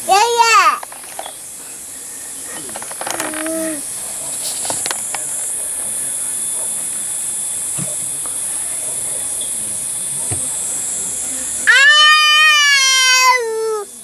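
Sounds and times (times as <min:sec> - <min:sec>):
high-pitched insect chorus: 0:00.1 - 0:07.4.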